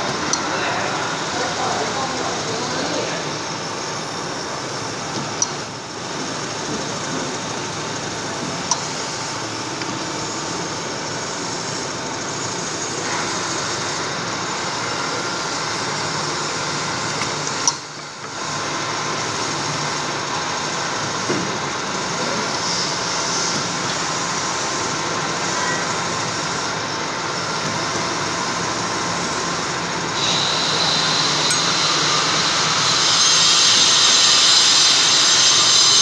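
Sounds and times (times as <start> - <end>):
milling machine cutting metal: 26.0 - 36.0.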